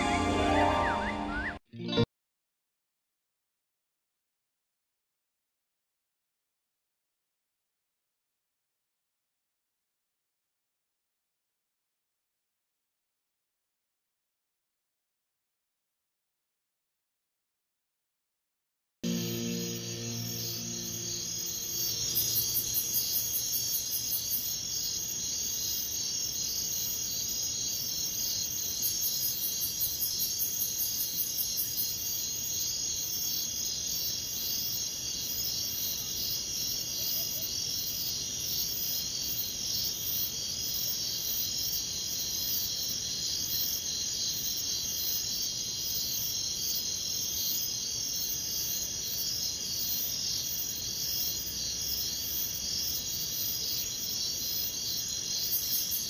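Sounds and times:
pulsing high insect call: 0:19.0 - 0:56.0
insect chirring: 0:19.1 - 0:56.0.

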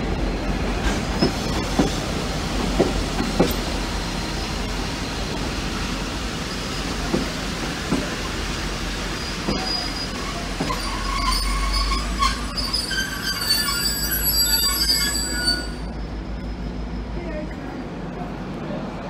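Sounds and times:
train carriages rolling on tracks: 0:00.0 - 0:19.0
train wheels squealing: 0:09.0 - 0:17.1.

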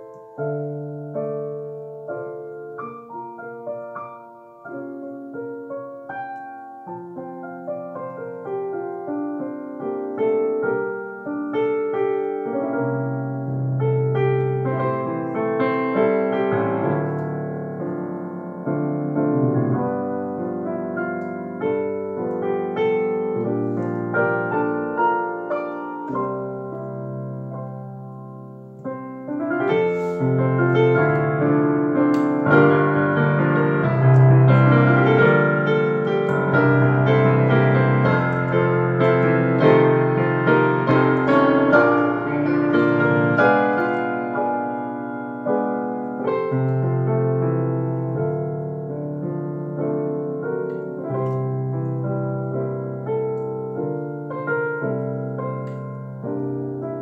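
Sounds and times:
digital piano playing a hymn: 0:00.0 - 0:57.0.

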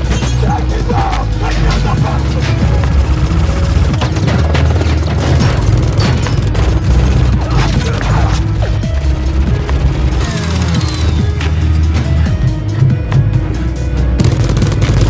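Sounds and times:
low rumbling film score: 0:00.0 - 0:15.0
rapid gunfire: 0:01.5 - 0:08.3, 0:14.2 - 0:15.0.

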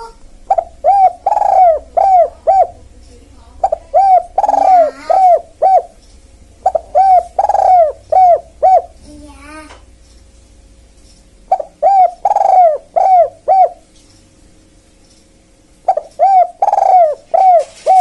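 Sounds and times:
dove cooing: 0:00.0 - 0:06.0, 0:06.6 - 0:09.1, 0:11.5 - 0:13.9, 0:15.8 - 0:18.0.

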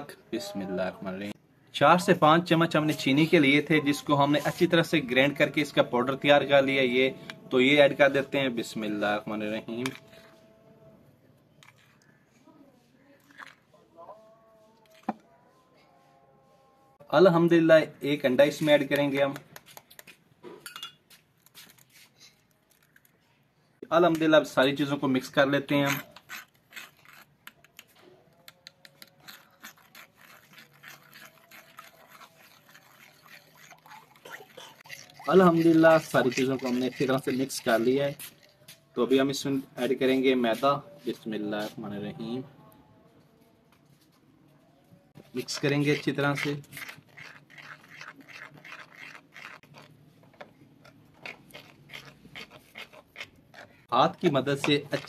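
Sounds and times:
spoon stirring in earthenware bowl: 0:06.7 - 0:10.7, 0:25.7 - 0:39.5, 0:45.2 - 0:55.0.

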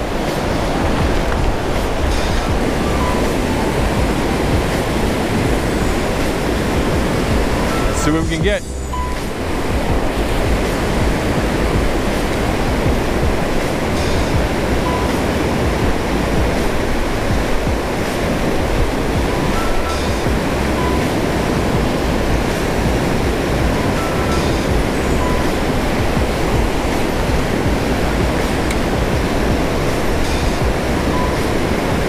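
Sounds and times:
water rushing through dam spillway: 0:00.0 - 0:32.0.

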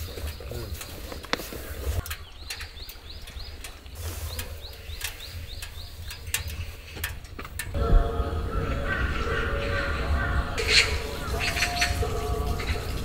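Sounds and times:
small bird chirping: 0:00.0 - 0:07.0
sharp clicks: 0:02.0 - 0:07.8
low rumble: 0:07.8 - 0:13.0.

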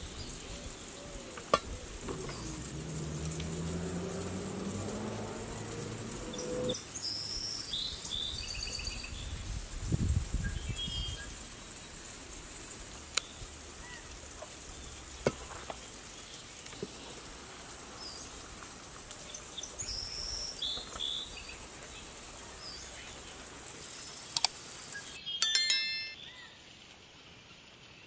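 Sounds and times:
insects hissing: 0:00.0 - 0:25.2.

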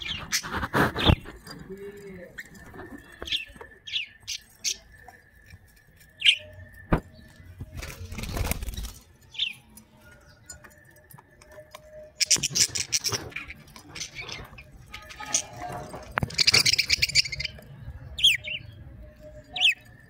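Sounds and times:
loud rustle: 0:00.0 - 0:01.5
budgerigars chirping and chattering: 0:00.0 - 0:20.0.

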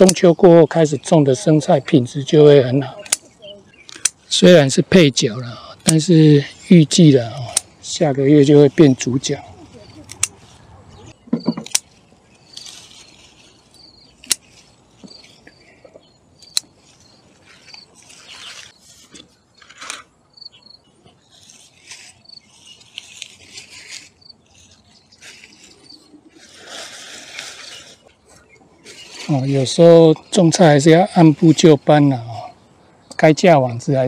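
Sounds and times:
sharp clicks: 0:03.9 - 0:04.2, 0:07.4 - 0:07.7, 0:16.4 - 0:16.7
lettuce leaves rustling: 0:08.0 - 0:11.2, 0:11.8 - 0:15.8, 0:16.4 - 0:20.1, 0:21.2 - 0:32.4
high insect chirps: 0:08.3 - 0:33.4.

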